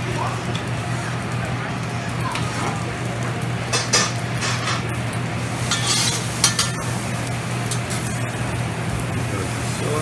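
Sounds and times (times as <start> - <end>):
food sizzling: 0.0 - 10.0
metal spatulas scraping griddle: 5.6 - 6.9.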